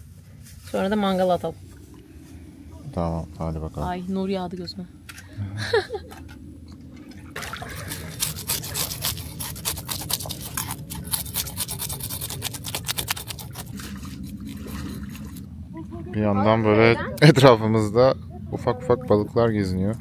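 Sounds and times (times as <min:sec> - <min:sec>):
knife scraping fish scales: 0:07.7 - 0:15.4.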